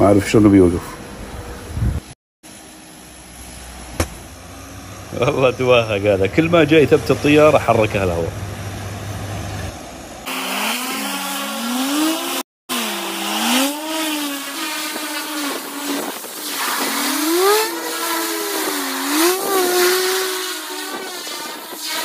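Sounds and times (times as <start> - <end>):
twin turboprop engines: 2.7 - 10.2.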